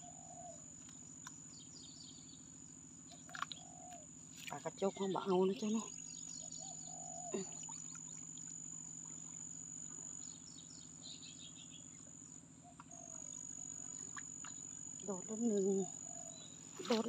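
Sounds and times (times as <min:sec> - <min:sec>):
insects trilling: 0:00.0 - 0:17.0
birds chirping: 0:04.8 - 0:08.2.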